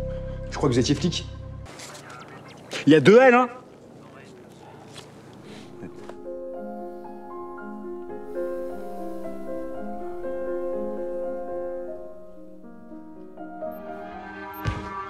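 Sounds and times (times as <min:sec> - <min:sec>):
slow piano music: 0:00.0 - 0:01.7, 0:05.4 - 0:15.0.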